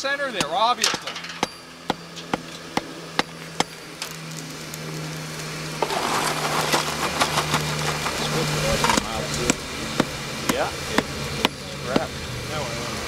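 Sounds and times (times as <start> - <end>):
steady low hum: 0.0 - 13.0
hammer striking hot iron on anvil: 0.3 - 3.8, 8.8 - 12.1.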